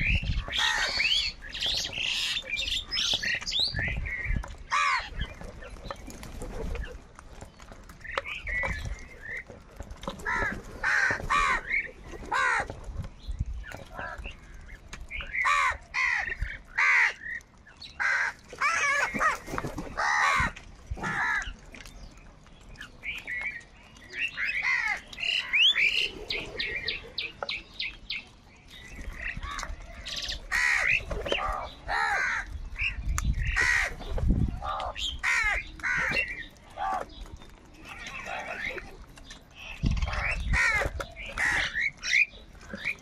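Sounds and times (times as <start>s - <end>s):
crows cawing: 0.5s - 1.1s, 4.7s - 5.2s, 10.2s - 12.7s, 15.3s - 17.4s, 18.0s - 19.4s, 20.0s - 21.6s, 24.5s - 25.5s, 29.4s - 32.6s, 33.4s - 34.0s, 34.6s - 37.0s.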